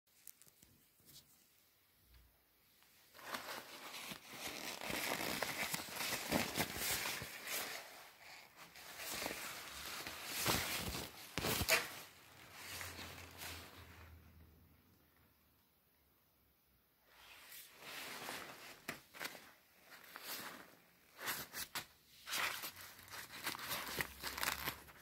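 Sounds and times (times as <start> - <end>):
plastic coat crinkling: 3.1 - 13.9, 22.3 - 25.0.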